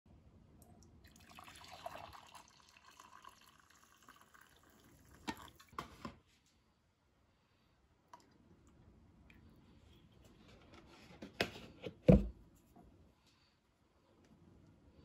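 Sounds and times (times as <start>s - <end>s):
liquid pouring into mug: 0.8s - 5.8s.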